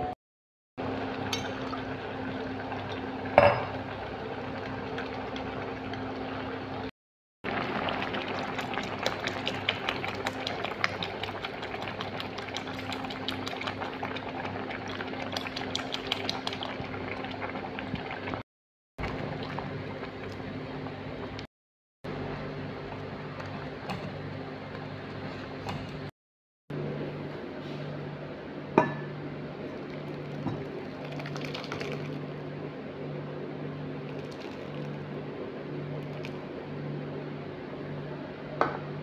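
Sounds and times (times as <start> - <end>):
milk boiling in steel pot: 0.8 - 6.9, 7.5 - 18.4, 19.0 - 21.5, 29.4 - 32.4, 33.9 - 37.2.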